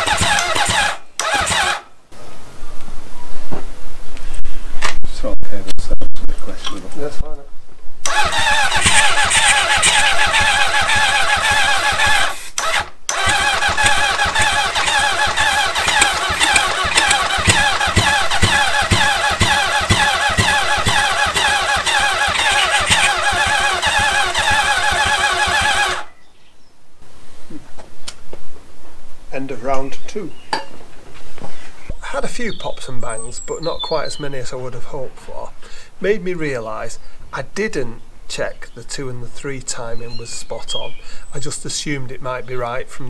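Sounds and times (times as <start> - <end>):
engine cranking on electric starter: 0.0 - 1.9, 8.0 - 26.1.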